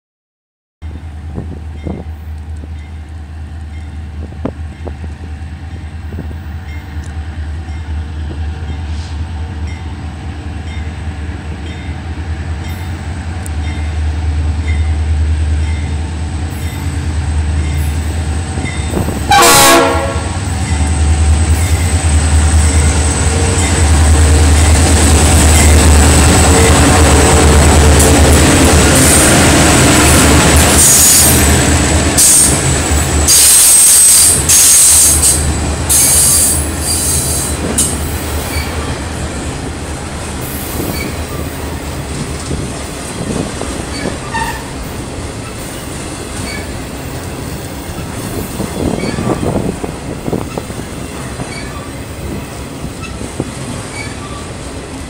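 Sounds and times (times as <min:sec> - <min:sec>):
diesel locomotive engine rumble: 0:00.8 - 0:55.0
train wheels high whine: 0:00.9 - 0:55.0
train horn blast: 0:18.9 - 0:20.6, 0:44.2 - 0:44.8.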